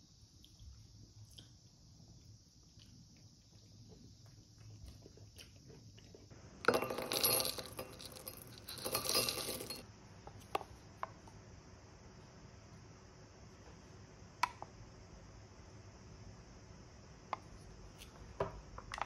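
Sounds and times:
granola rattling into glass bowl: 6.7s - 9.8s.

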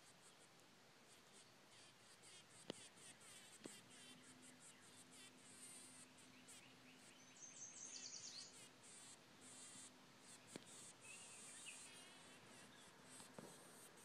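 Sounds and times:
faint high chirps: 6.1s - 8.7s, 11.0s - 13.0s.

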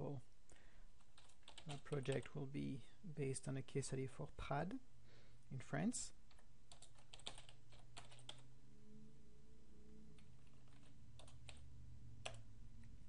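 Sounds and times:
faint low hum: 0.0s - 13.0s
computer keyboard typing: 1.0s - 2.4s, 6.3s - 8.5s, 10.2s - 11.6s, 12.2s - 12.4s.

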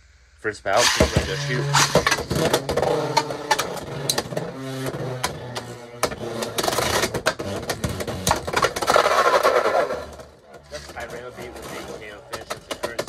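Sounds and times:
spinning tops whirring: 0.8s - 7.4s.

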